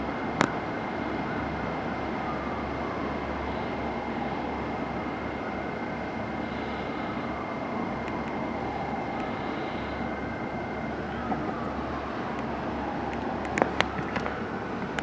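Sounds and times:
engine and road rumble: 0.0 - 15.0
faint wailing siren: 0.0 - 15.0
steady high whine: 0.0 - 15.0.

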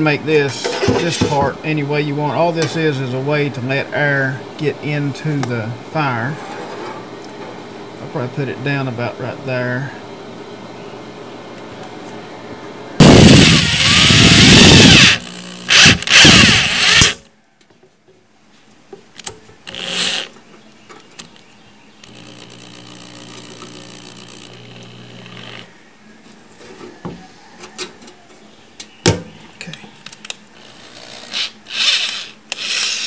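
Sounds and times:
cordless drill driving fastener: 13.0 - 17.2, 19.7 - 20.3, 22.0 - 25.7, 30.6 - 33.0.

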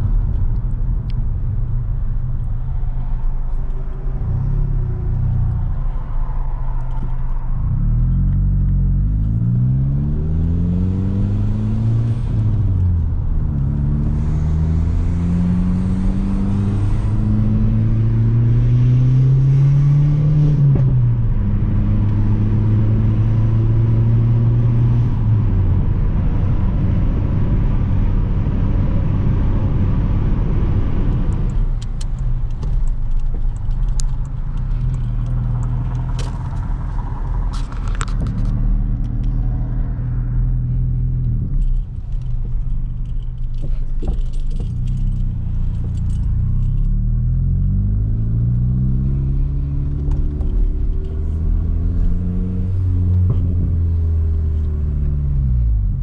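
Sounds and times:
car engine and exhaust: 0.0 - 56.0
metallic jingling and clicks: 41.6 - 46.9.

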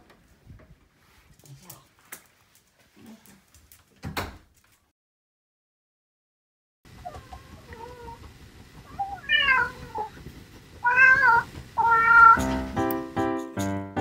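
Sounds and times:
cat meowing: 8.9 - 10.1, 10.8 - 12.5.

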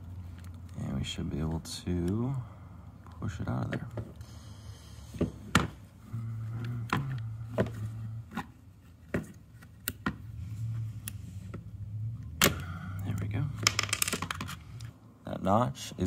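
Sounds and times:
low hum: 10.2 - 15.2.

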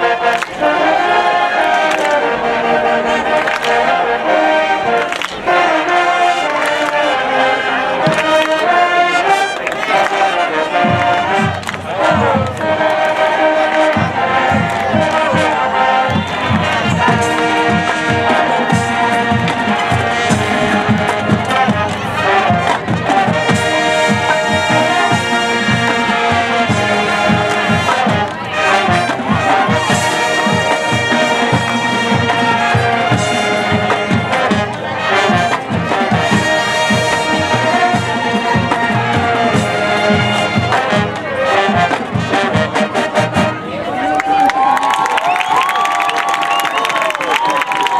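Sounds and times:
brass and saxophone chords: 0.0 - 44.0
percussion beat: 9.4 - 43.6.

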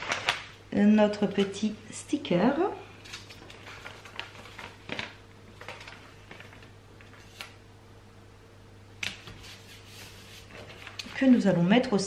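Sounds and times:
paper envelope rustling: 0.0 - 0.5, 3.0 - 7.6, 9.0 - 11.4
faint steady hum: 0.0 - 12.0.

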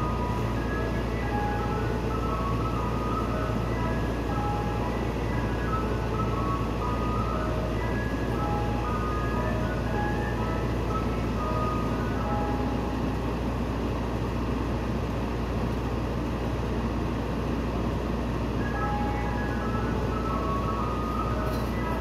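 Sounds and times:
ice cream truck chime jingle: 0.0 - 14.6, 18.0 - 22.0
truck idling hum: 0.0 - 22.0.

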